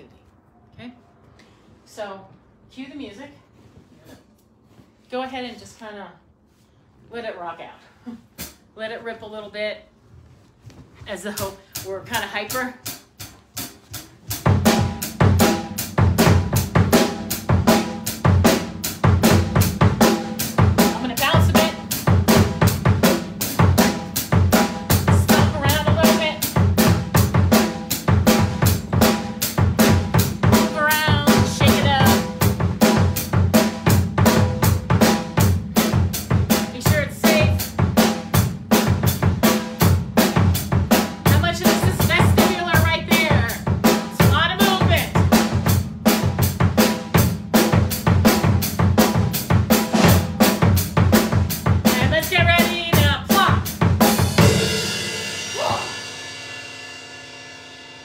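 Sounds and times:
drum kit playing fast rock beat: 0:11.6 - 0:58.0.

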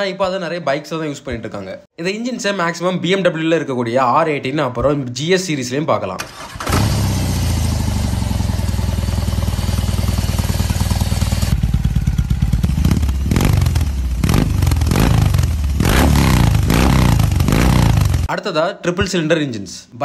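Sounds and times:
motorcycle engine idling and revving: 0:06.5 - 0:18.3.

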